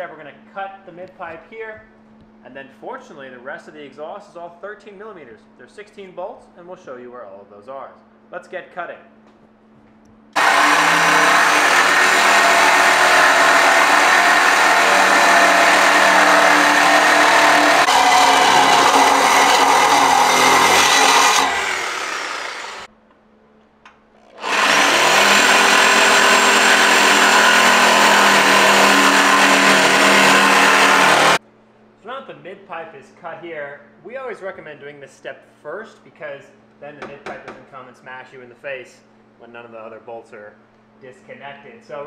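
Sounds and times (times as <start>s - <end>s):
power tool cutting metal pipe: 10.4s - 22.9s, 24.3s - 31.4s.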